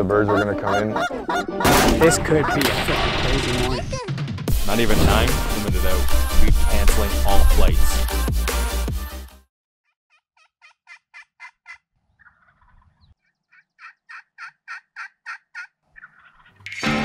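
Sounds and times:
turkey yelping: 0.0s - 3.1s, 10.1s - 16.8s
music: 0.0s - 9.5s, 16.7s - 17.0s.

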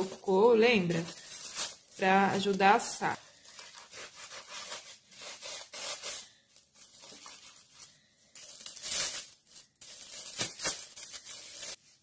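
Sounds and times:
aluminium foil crinkling and tearing: 0.0s - 12.0s.

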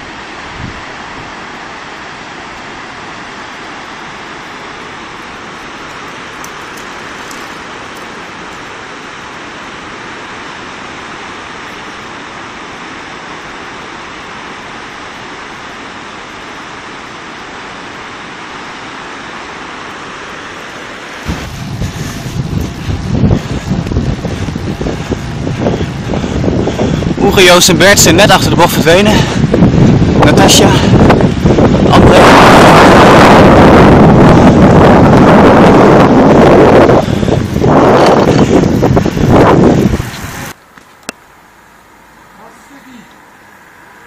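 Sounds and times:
rushing torrent and waterfall: 0.0s - 44.0s
wind buffeting microphone: 21.2s - 40.6s.

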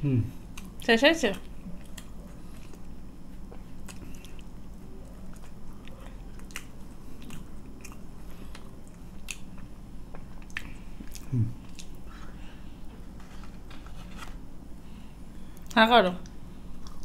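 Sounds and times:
chewing food: 0.5s - 14.3s
mouth clicks and crunches: 3.5s - 12.0s.

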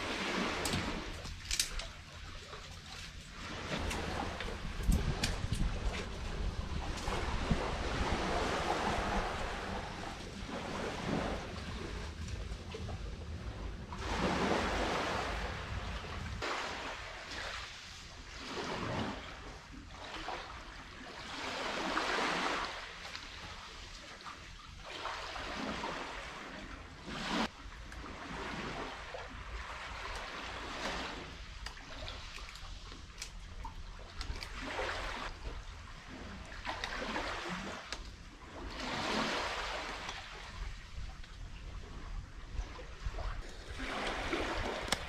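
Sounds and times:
low steady rumble: 0.0s - 16.4s
small waves washing on beach: 0.0s - 45.0s.

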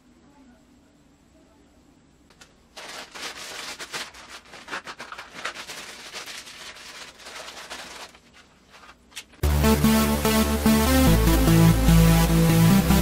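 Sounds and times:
plastic bag crinkling: 2.4s - 9.4s
electronic dance music: 9.4s - 13.0s.

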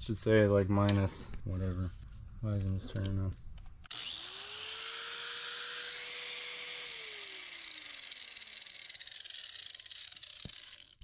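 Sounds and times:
insects chirping: 0.1s - 3.9s
small electric motor whirring: 2.9s - 11.0s.

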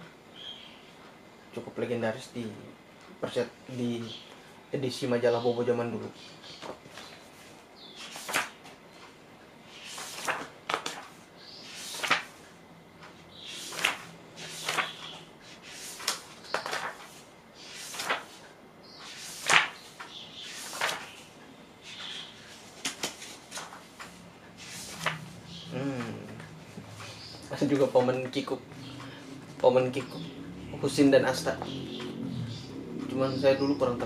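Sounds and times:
magazine pages turning: 8.0s - 8.6s, 9.8s - 12.4s, 13.5s - 21.2s, 21.9s - 25.3s.

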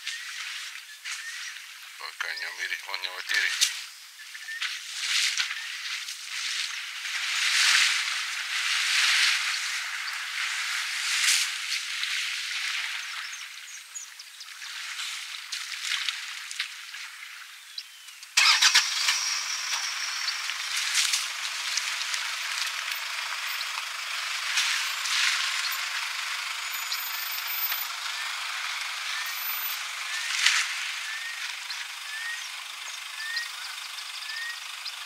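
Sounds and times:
elephant splashing through water: 18.4s - 31.2s.

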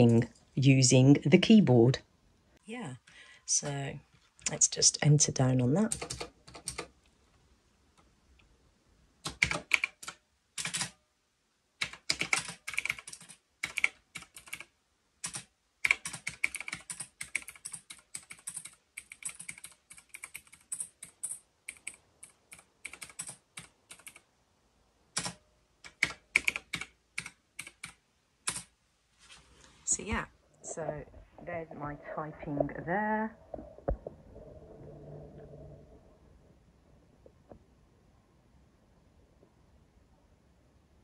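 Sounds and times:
mechanical keyboard typing: 5.6s - 6.9s, 9.2s - 11.0s, 11.8s - 24.3s, 25.1s - 28.7s.

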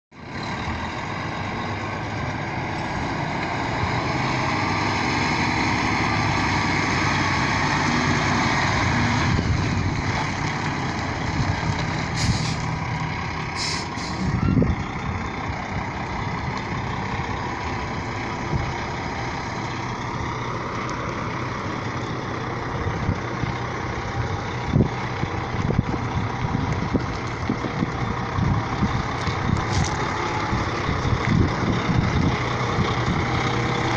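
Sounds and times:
truck diesel engine running: 0.2s - 33.9s
air hissing: 12.1s - 12.7s, 13.6s - 14.4s.

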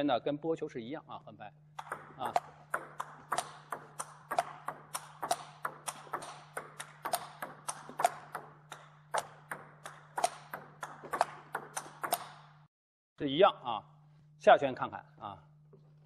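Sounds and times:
table tennis ball clicking: 1.8s - 12.6s.

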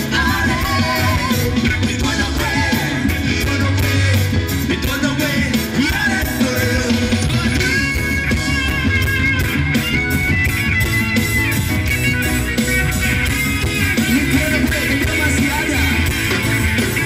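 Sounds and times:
person singing: 0.0s - 9.0s
reggae band playing: 0.0s - 17.0s.

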